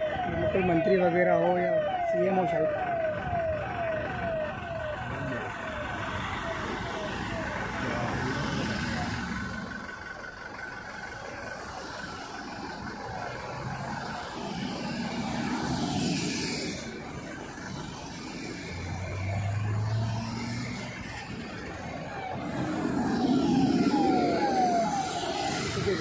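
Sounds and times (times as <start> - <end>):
cars driving past: 5.3 - 26.0
low engine hum: 5.6 - 26.0.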